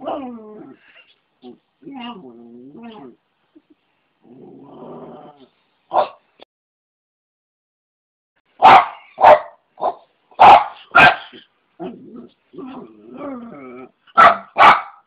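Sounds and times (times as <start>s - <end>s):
small dog barking: 5.9s - 6.2s, 8.6s - 11.4s, 14.1s - 15.0s.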